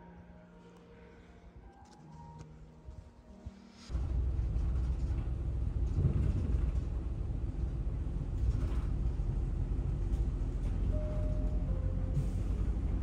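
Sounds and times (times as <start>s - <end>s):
bus engine and road rumble: 3.8s - 13.0s.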